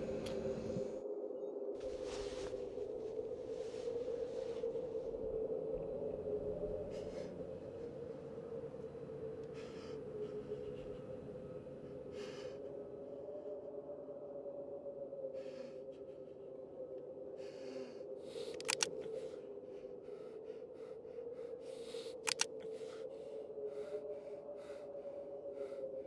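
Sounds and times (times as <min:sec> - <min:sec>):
tense breathing: 0:00.0 - 0:01.2, 0:01.8 - 0:26.0
steady droning tone: 0:00.0 - 0:26.0
sharp clicks: 0:18.5 - 0:19.2, 0:22.1 - 0:22.8.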